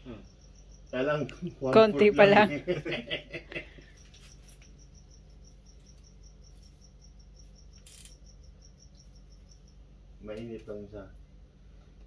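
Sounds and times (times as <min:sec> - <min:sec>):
insect chirping: 0:00.0 - 0:11.6.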